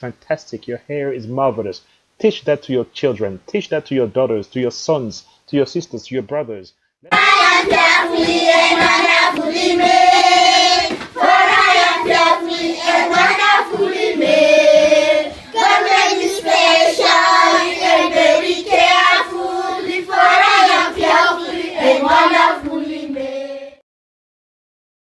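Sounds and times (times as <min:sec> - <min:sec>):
children singing: 0:07.1 - 0:23.8.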